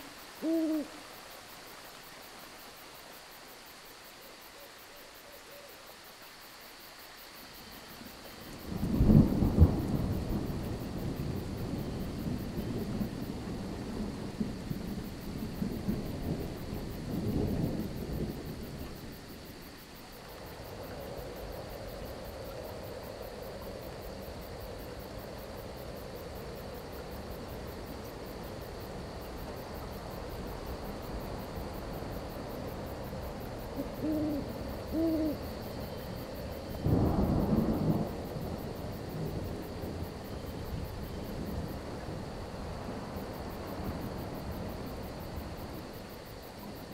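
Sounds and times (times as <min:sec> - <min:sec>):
crickets chirping: 0:00.0 - 0:46.9
rain hissing: 0:00.0 - 0:46.9
owl hooting: 0:00.4 - 0:01.1, 0:04.6 - 0:05.8, 0:33.7 - 0:35.6
thunder rumbling: 0:08.6 - 0:19.2, 0:30.5 - 0:46.1.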